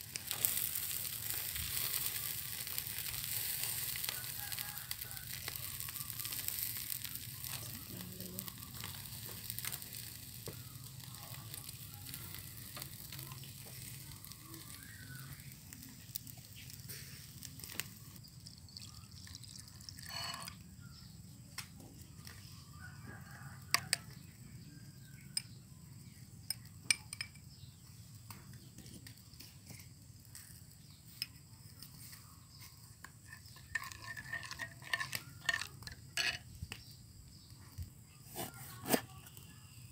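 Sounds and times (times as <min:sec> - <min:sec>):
fish sizzling on a grill: 0:00.0 - 0:39.9
sauce pouring into a bowl: 0:18.3 - 0:20.2.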